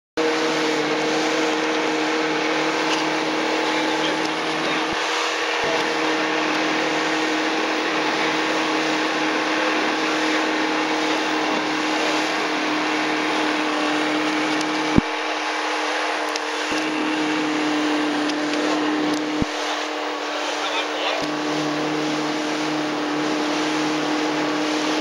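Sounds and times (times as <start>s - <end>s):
motorboat engine droning: 0.2s - 25.0s
water rushing along hull: 0.2s - 25.0s.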